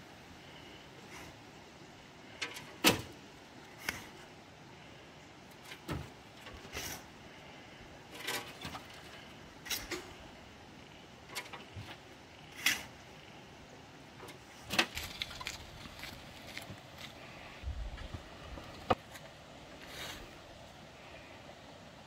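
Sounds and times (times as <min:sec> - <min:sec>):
shovel scraping soil: 0:12.5 - 0:13.0.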